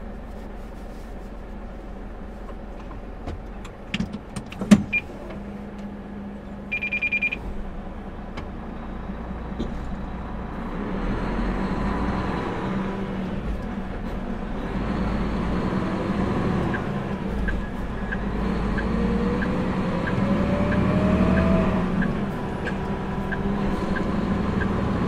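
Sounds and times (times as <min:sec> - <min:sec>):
diesel truck engine: 0:00.0 - 0:25.0
clicks and knock in cab: 0:02.5 - 0:05.0
high electronic beeps: 0:06.7 - 0:07.4.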